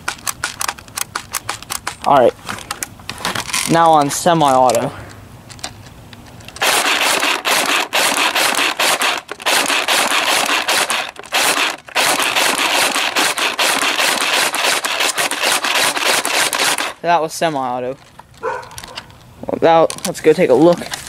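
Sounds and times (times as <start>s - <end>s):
airsoft rifle shots: 6.6s - 17.0s.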